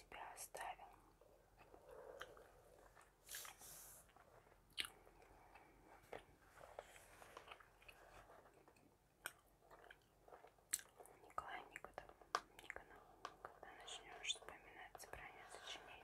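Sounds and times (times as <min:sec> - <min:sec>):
gum chewing with wet clicks: 0:04.7 - 0:05.8, 0:08.7 - 0:13.0.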